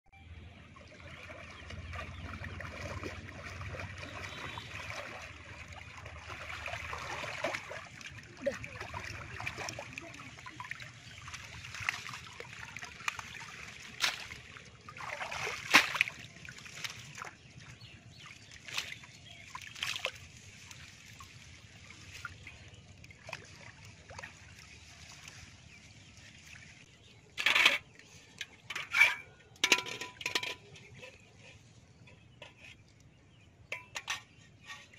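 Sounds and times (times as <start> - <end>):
water sloshing and splashing: 0.4 - 34.9
water running off net: 1.7 - 17.3.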